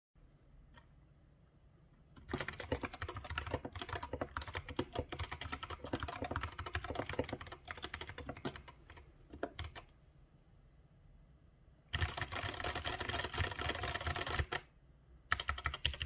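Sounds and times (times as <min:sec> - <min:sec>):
fast mechanical keyboard typing: 0:02.2 - 0:09.9, 0:11.9 - 0:14.7, 0:15.3 - 0:16.0.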